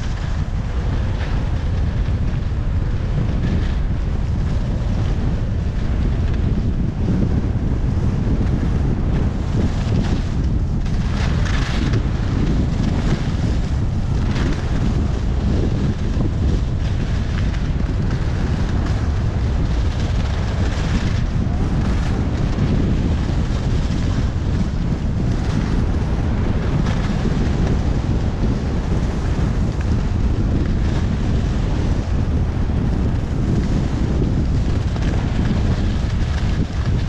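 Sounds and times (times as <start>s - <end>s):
wind rumble on microphone: 0.0s - 37.0s.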